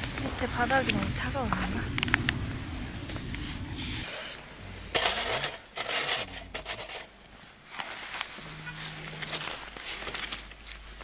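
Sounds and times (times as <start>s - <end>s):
plastic bag rustling and scraping: 2.4s - 11.0s.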